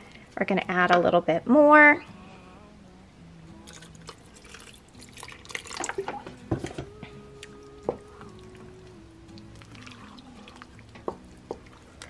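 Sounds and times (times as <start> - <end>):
soft background music: 0.0 - 12.0
liquid pouring and splashing: 3.6 - 6.4, 9.4 - 11.0.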